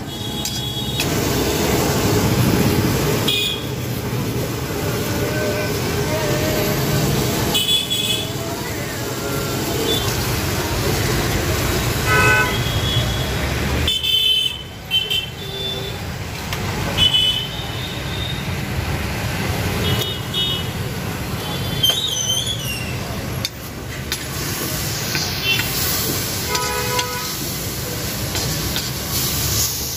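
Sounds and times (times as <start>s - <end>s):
traffic rumble: 0.0s - 29.9s
vehicle horn toots: 12.1s - 13.3s, 26.5s - 27.4s.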